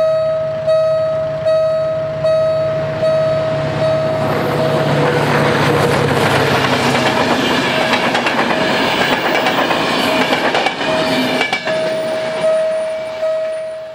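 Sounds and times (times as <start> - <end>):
level crossing warning signal: 0.0 - 5.0, 10.2 - 13.9
train wheels clattering: 4.2 - 13.2.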